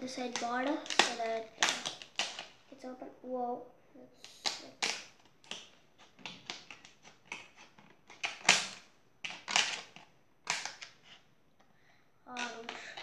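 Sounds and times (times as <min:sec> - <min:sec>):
scissors snipping plastic: 0:00.2 - 0:02.6, 0:04.2 - 0:11.0, 0:12.3 - 0:13.0.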